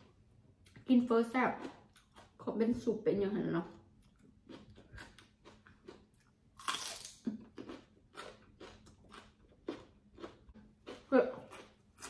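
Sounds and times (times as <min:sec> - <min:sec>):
chewing and mouth smacks: 0:04.0 - 0:12.0.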